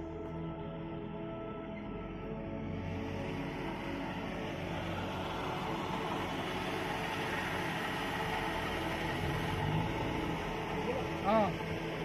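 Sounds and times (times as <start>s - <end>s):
jeep engine running: 0.0s - 12.0s.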